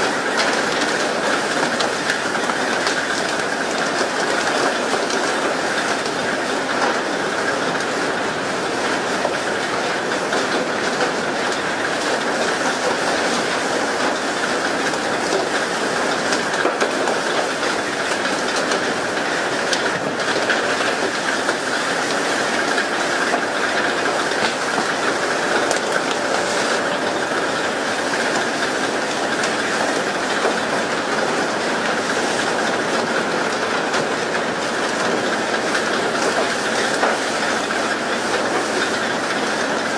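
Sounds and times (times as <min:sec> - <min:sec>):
water rushing along hull: 0:00.0 - 0:39.9
spray jets hissing: 0:23.6 - 0:29.4.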